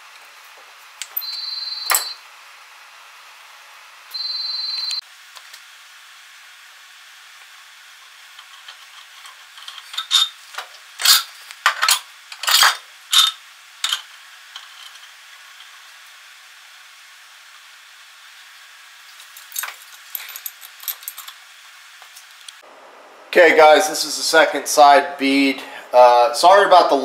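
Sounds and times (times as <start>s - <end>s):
metal parts clanking: 8.4s - 15.1s, 19.2s - 21.4s
metal scraping: 8.4s - 15.2s.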